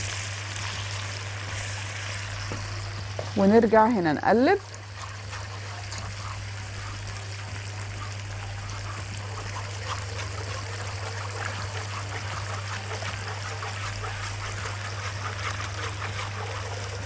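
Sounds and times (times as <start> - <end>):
whisk clicking against pot: 8.0 - 17.0.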